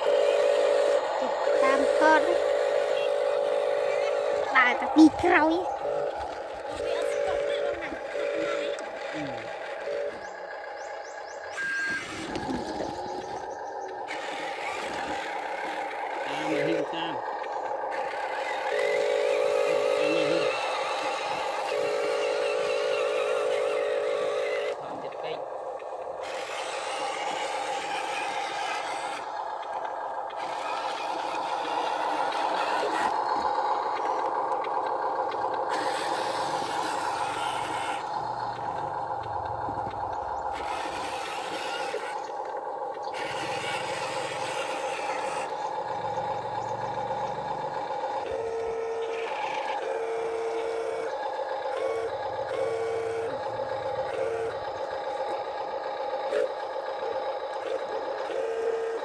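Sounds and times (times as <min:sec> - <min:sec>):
toy truck electric drive whining: 0:00.0 - 0:59.0.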